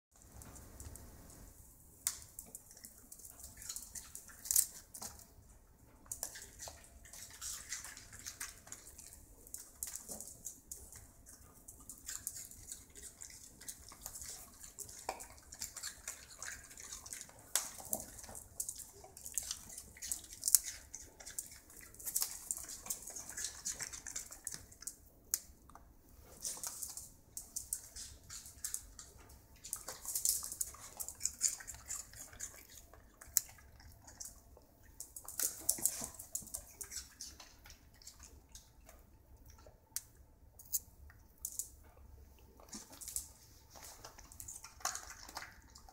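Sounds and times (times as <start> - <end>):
dogs crunching vegetables: 0.2 - 45.9
claws ticking on tile floor: 26.4 - 41.8.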